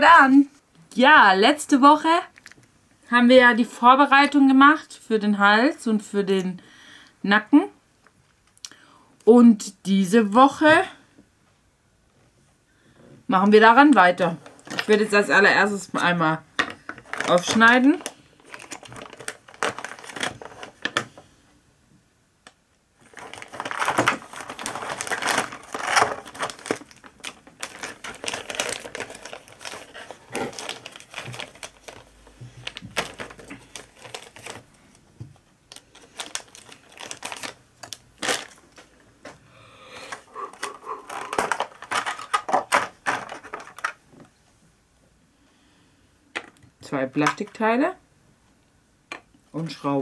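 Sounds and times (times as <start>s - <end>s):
plastic packaging crinkling: 16.0s - 21.1s, 23.0s - 39.1s, 40.1s - 44.0s.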